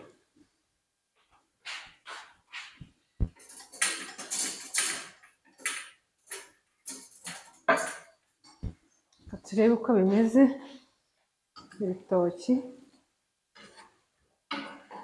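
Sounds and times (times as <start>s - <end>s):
kitchen items clattering: 2.8s - 9.5s, 13.6s - 15.0s.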